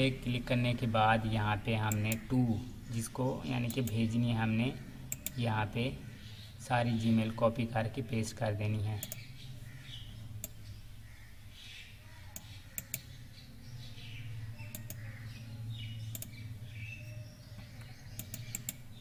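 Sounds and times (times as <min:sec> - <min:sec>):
steady low hum: 0:00.0 - 0:19.0
computer mouse clicks: 0:05.1 - 0:05.4, 0:09.0 - 0:09.3, 0:12.3 - 0:13.1, 0:14.6 - 0:15.1, 0:16.1 - 0:16.4, 0:17.7 - 0:18.8
faint bird chirps: 0:09.0 - 0:19.0.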